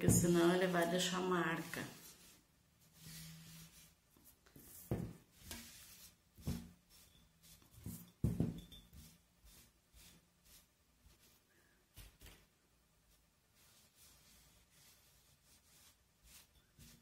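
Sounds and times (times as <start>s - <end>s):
damp cloth rubbing on paper: 1.1s - 8.1s, 9.0s - 11.5s, 13.1s - 17.0s.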